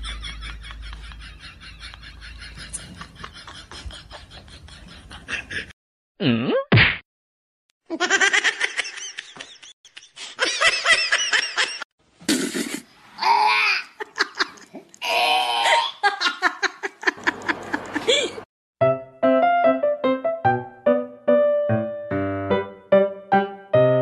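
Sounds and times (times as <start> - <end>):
person laughing hard: 0.0 - 5.7, 7.9 - 11.8, 13.6 - 14.7, 15.6 - 18.5.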